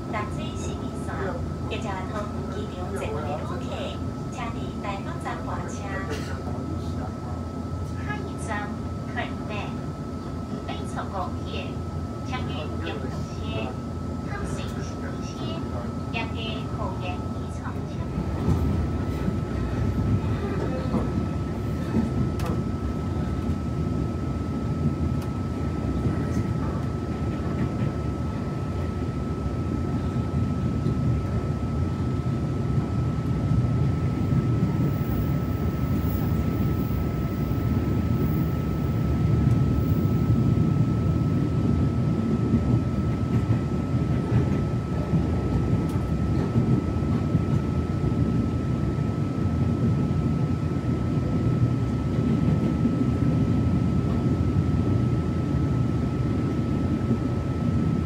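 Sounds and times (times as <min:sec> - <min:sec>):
train cabin low rumble: 0:00.0 - 0:58.0.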